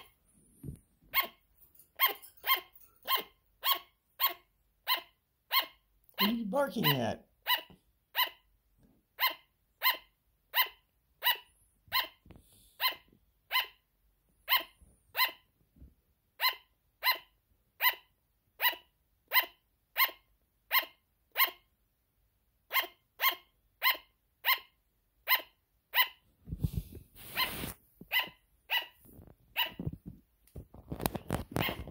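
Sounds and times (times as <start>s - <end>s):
sugar glider barking: 1.1s - 1.4s, 2.0s - 8.5s, 9.2s - 12.2s, 12.8s - 13.8s, 14.5s - 15.5s, 16.4s - 21.7s, 22.7s - 26.2s, 29.6s - 29.9s
rustling noise: 26.3s - 31.9s.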